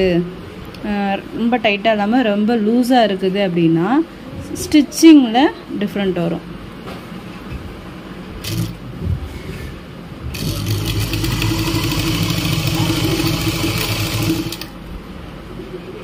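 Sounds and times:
sewing machine stitching fabric: 0:08.4 - 0:08.8, 0:10.3 - 0:14.8.

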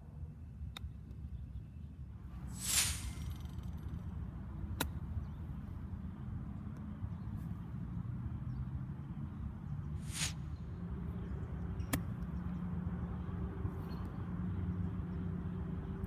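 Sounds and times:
brief hiss: 0:02.5 - 0:03.6, 0:10.0 - 0:10.5.

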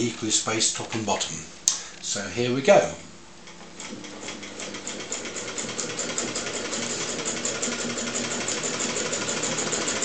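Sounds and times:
sewing machine clatter: 0:03.8 - 0:10.0.

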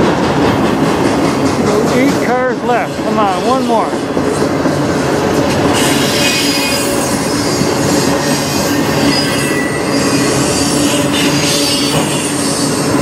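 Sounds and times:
freight cars rumbling on rails: 0:00.0 - 0:13.0
high wheel squealing: 0:05.8 - 0:13.0.

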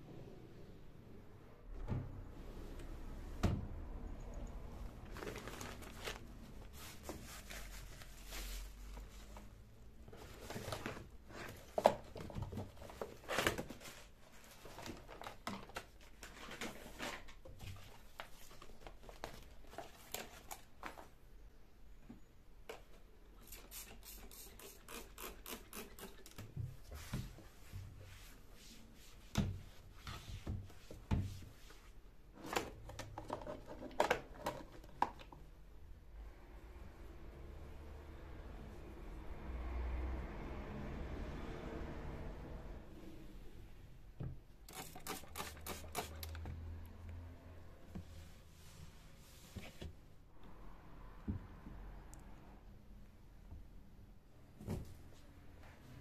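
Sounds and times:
carrier bags rustling and crinkling: 0:04.9 - 0:21.2.

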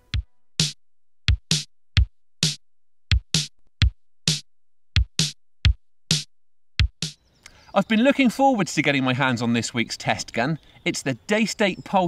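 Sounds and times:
drum machine kick drum: 0:00.0 - 0:07.2
drum machine snare: 0:00.0 - 0:07.2.

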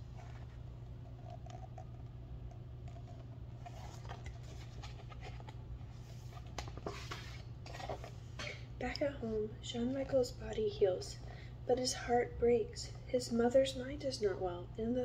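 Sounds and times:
steady low hum: 0:00.0 - 0:15.0
book pages rustling and flicking: 0:03.5 - 0:08.2.

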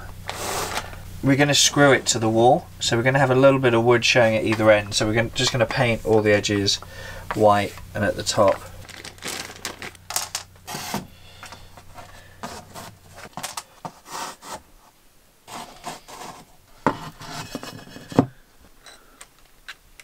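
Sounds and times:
tiles sliding on plywood: 0:00.3 - 0:01.0, 0:10.7 - 0:14.7, 0:15.5 - 0:18.4.

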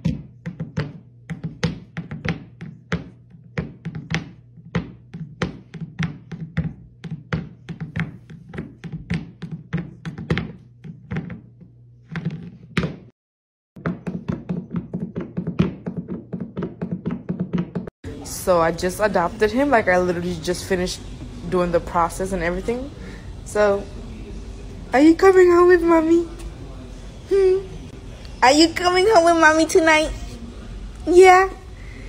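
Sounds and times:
food bowl knocking on hardwood floor: 0:00.0 - 0:11.4, 0:13.8 - 0:17.9.

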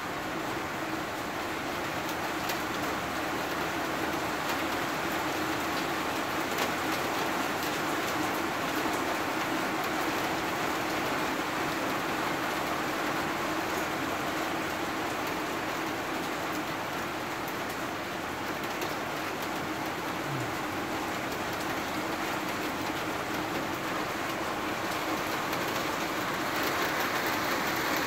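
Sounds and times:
steady rain hiss: 0:00.0 - 0:28.0.

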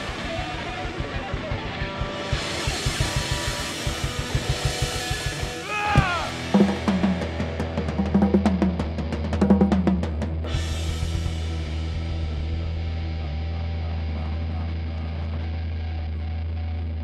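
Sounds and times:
snare and cymbal drum fill: 0:00.0 - 0:11.7
rapid bass drum pattern: 0:00.0 - 0:13.0
rock band playing: 0:00.0 - 0:16.8.

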